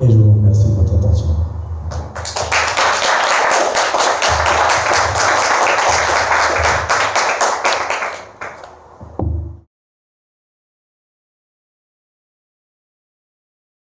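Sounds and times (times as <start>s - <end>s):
audience applauding: 1.9s - 8.8s.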